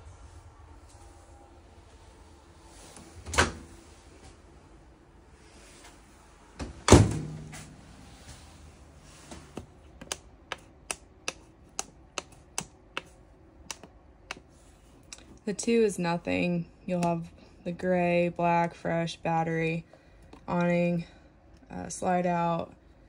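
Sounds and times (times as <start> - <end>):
push buttons clicking: 9.6 - 13.1.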